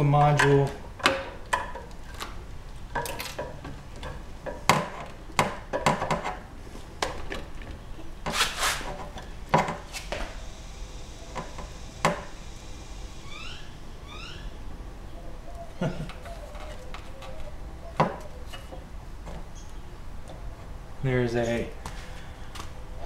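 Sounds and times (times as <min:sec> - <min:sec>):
short rising chirps: 0:10.4 - 0:14.7.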